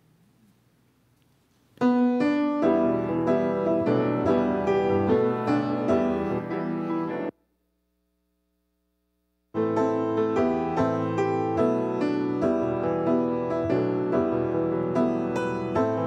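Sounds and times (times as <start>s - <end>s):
piano music: 1.8s - 7.3s, 9.6s - 16.0s.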